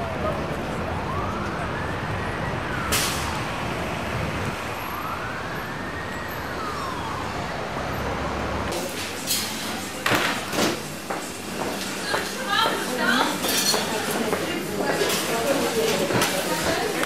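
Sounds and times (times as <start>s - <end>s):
siren wailing: 0.0s - 8.7s
city traffic noise: 0.0s - 17.0s.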